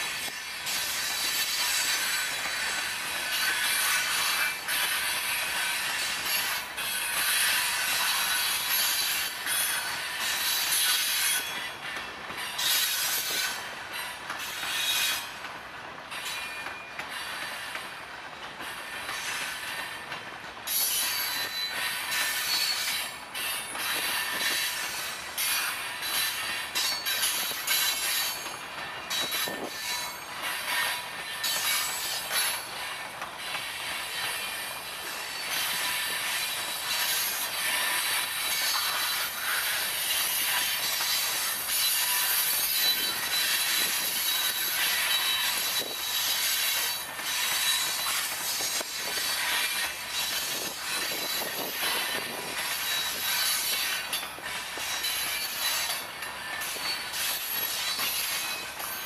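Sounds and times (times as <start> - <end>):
steel wheels rushing on rail: 0.0 - 59.0
high wheel squeal: 35.2 - 59.0.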